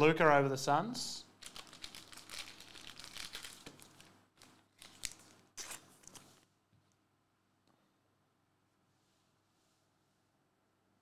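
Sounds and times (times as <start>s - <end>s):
trading cards rustling: 1.4s - 6.4s.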